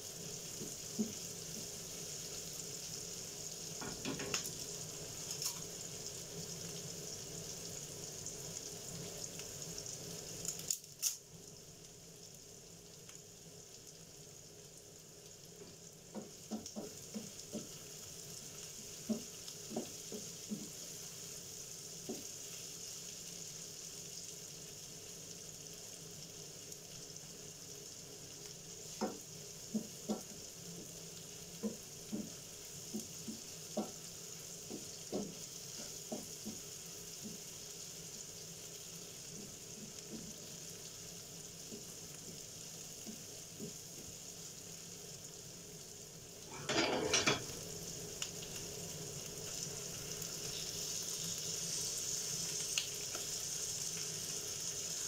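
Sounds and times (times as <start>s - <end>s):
onions sizzling in oil: 0.0s - 55.0s
chicken dropped into hot pan: 3.8s - 4.5s
wooden spatula scraping pan: 46.5s - 47.4s.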